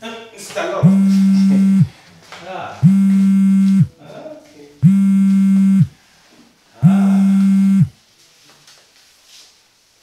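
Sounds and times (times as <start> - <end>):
mobile phone ringing: 0.8 - 1.9, 2.8 - 3.9, 4.8 - 5.9, 6.8 - 7.9.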